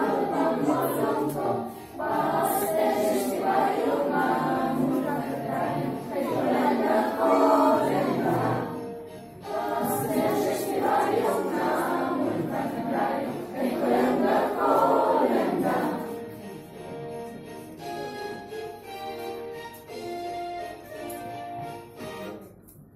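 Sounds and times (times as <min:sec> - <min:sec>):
children singing a carol: 0:00.0 - 0:16.6
instrumental backing music: 0:00.0 - 0:22.9.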